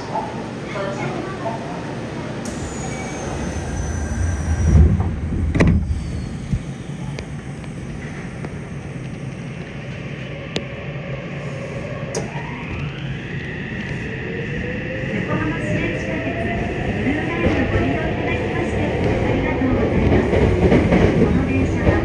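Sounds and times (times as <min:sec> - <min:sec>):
stopped train humming: 0:00.0 - 0:22.0
train doors sliding shut: 0:02.4 - 0:07.3.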